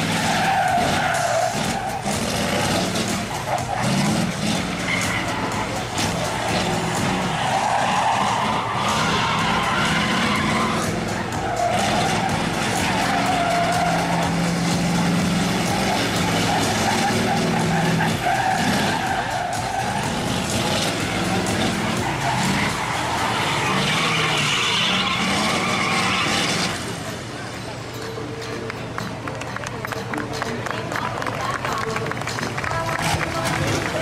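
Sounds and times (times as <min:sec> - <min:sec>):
diesel engine revving hard: 0:00.0 - 0:27.3
tyres skidding on wet pavement: 0:00.0 - 0:34.0.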